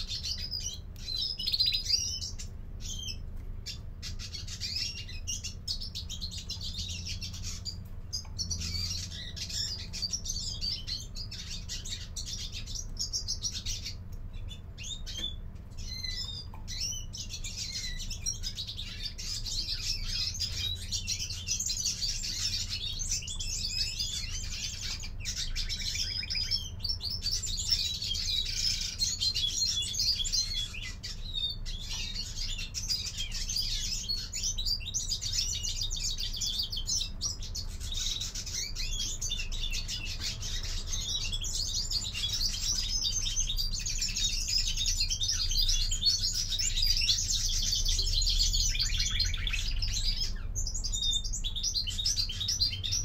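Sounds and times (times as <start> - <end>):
finches twittering: 0.0 - 53.0.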